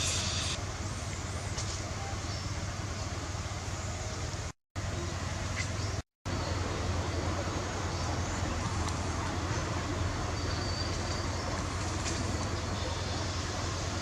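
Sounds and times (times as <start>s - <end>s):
low rumbling background noise: 0.0s - 14.0s.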